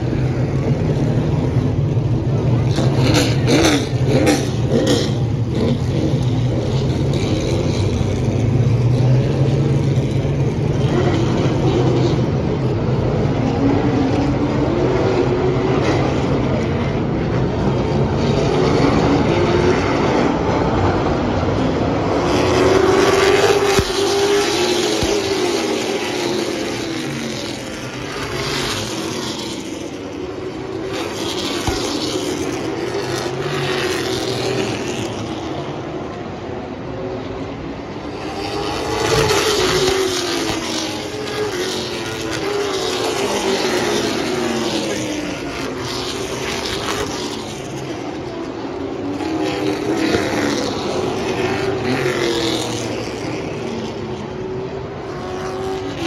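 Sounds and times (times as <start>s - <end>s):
race car engines passing: 0.0s - 56.0s.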